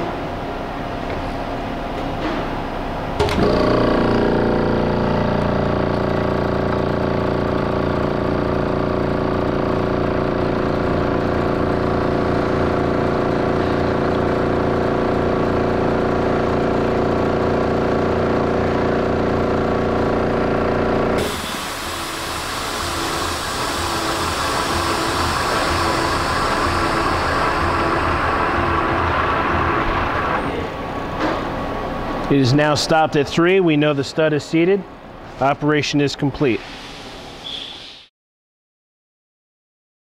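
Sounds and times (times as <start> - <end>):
motor and gearbox humming: 3.1 - 31.6.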